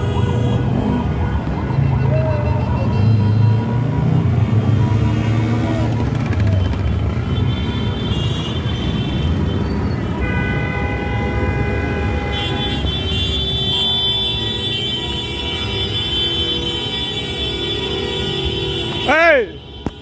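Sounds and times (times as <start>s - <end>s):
car horns blasting: 0.0s - 1.1s, 7.1s - 20.0s
motorcycle and car engines rumbling: 0.0s - 20.0s.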